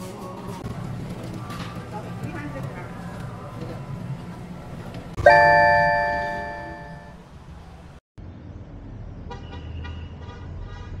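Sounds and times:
bell-like ding: 5.2s - 7.2s.

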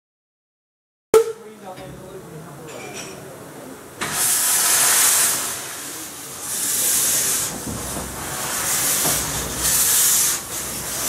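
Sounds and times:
steam locomotive hissing steam: 4.0s - 11.0s.

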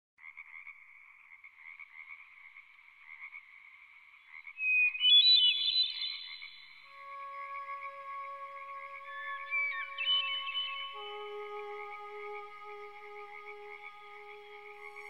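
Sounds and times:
ambient synthesizer music: 6.9s - 15.0s.

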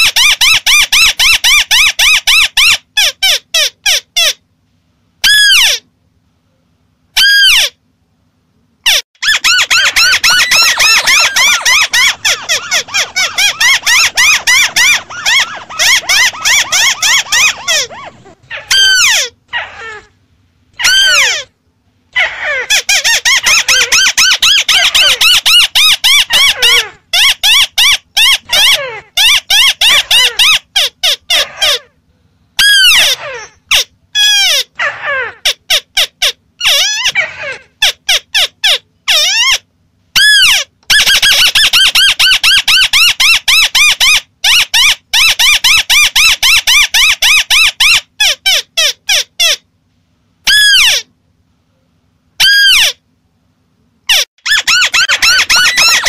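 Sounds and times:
crakes calling: 9.2s - 21.5s.

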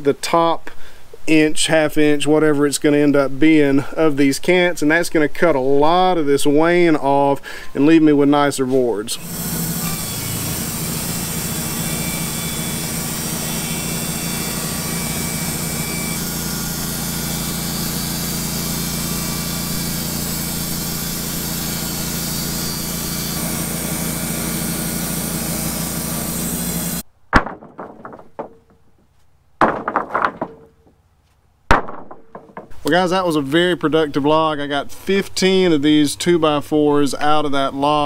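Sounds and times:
bandsaw mill cutting wood: 9.1s - 27.0s
wooden boards knocking: 27.3s - 31.0s, 31.7s - 32.9s.

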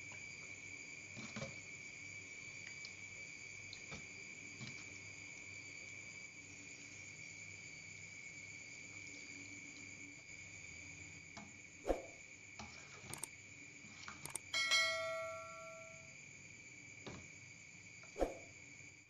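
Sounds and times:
crickets chirping: 0.0s - 19.0s
metal spoon clinking in metal bowl: 14.6s - 16.0s.

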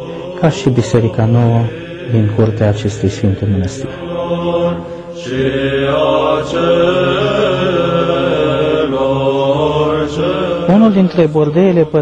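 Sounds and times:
church chant voices: 0.0s - 12.0s.

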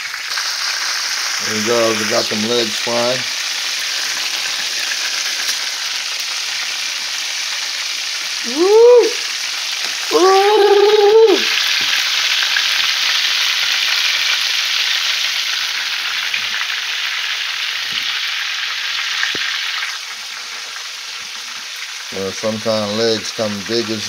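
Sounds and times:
chicken sizzling in hot oil: 0.0s - 24.0s
man whooping: 8.4s - 9.3s, 10.1s - 11.6s.

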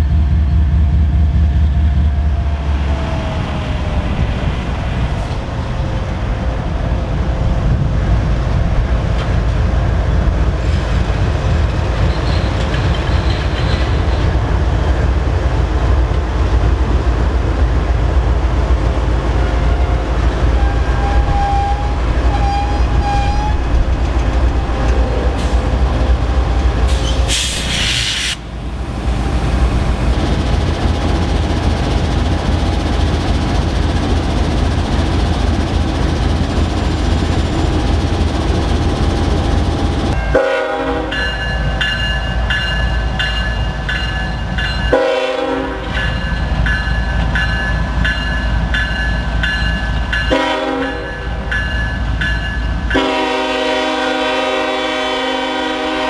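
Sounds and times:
wheel and rail noise: 0.0s - 45.0s
diesel locomotive engine rumble: 0.0s - 56.0s
loud hiss: 26.8s - 28.5s.

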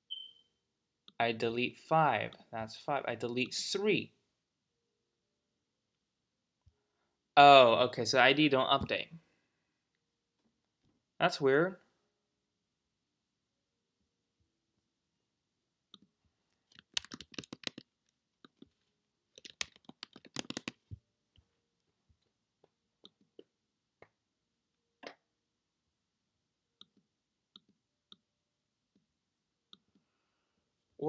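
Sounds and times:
faint keyboard typing: 15.9s - 21.5s.

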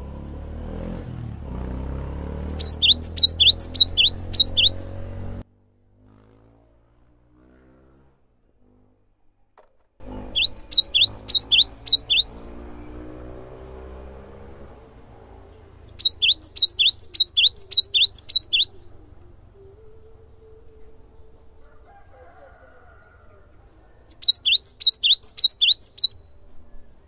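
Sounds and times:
bird singing high sweeping notes: 2.3s - 5.4s, 10.0s - 21.6s, 24.0s - 27.0s.

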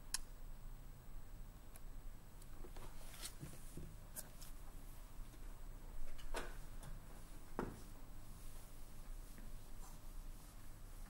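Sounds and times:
soft scratching or rustling: 2.6s - 5.4s, 7.1s - 11.0s.

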